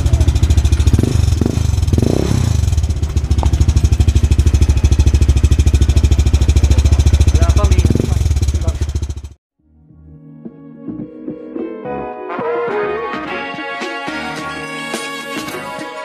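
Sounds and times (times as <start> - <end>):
scooter engine idling: 0.0 - 9.4.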